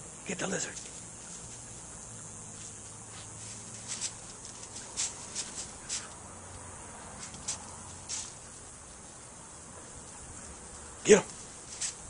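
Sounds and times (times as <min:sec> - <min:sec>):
brushing against leaves: 0:00.7 - 0:12.0
dogs sniffing: 0:00.9 - 0:06.2.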